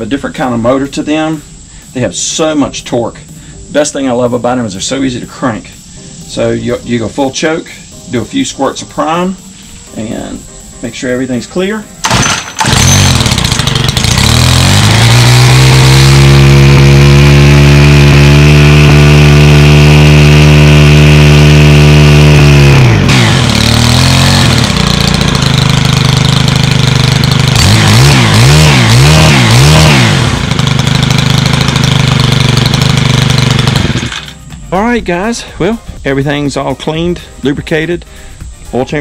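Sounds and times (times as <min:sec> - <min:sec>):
pull starter: 0:12.0 - 0:34.6
pole saw engine running: 0:12.0 - 0:35.4.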